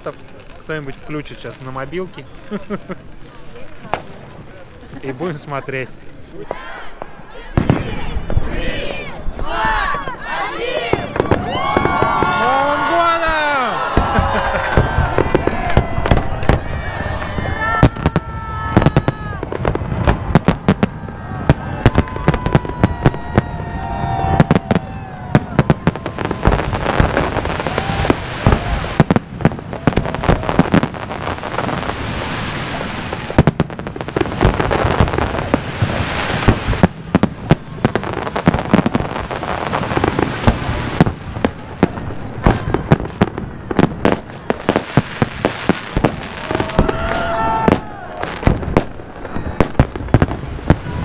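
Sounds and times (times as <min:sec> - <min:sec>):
fireworks bangs: 0:00.0 - 0:51.0
fireworks crackling: 0:00.0 - 0:51.0.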